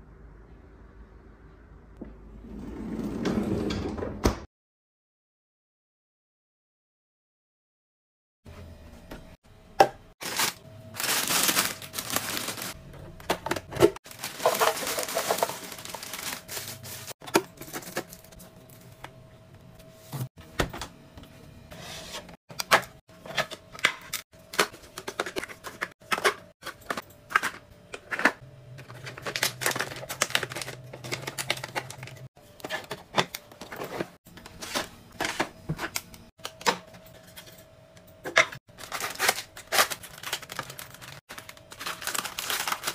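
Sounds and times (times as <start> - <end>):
wrapper packaging rustling: 10.2 - 12.8, 13.4 - 18.4, 24.6 - 35.4, 38.7 - 42.9
containers clicking and knocking: 13.2 - 16.1.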